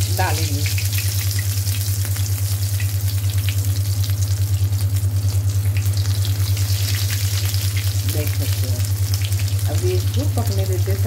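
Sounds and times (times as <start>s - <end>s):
food deep-frying in oil: 0.0s - 11.0s
loud low hum: 0.0s - 11.0s.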